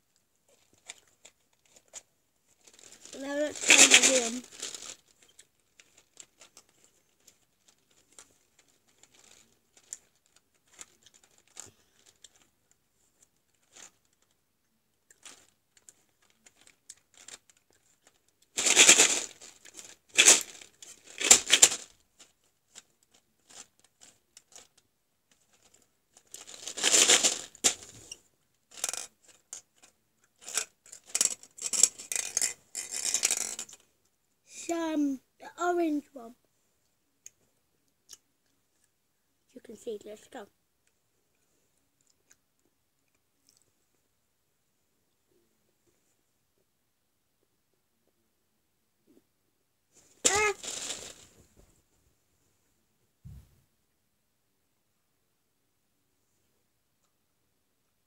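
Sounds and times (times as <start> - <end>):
rustling and scraping: 15.2 - 33.9, 49.9 - 52.0.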